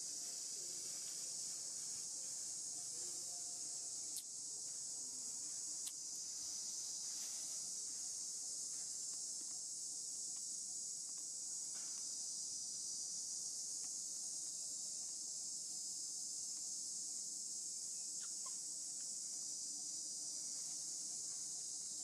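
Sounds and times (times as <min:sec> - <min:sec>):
insects chorus: 0:00.0 - 0:22.0.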